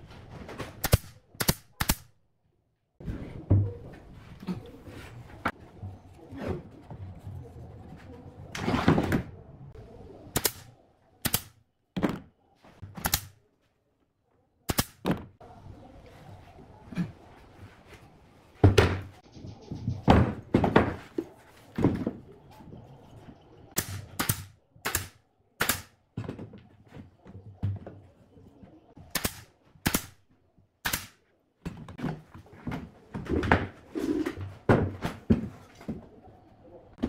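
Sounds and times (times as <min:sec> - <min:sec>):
wooden knocks and thunks: 0:12.0 - 0:13.0, 0:18.6 - 0:19.2, 0:19.8 - 0:22.8, 0:26.1 - 0:28.2, 0:34.4 - 0:36.1.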